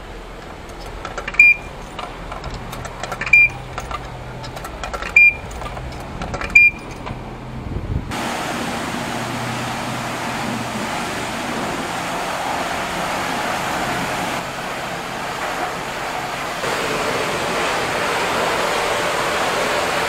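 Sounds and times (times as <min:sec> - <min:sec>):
car wash meter beeping: 0:00.0 - 0:07.3.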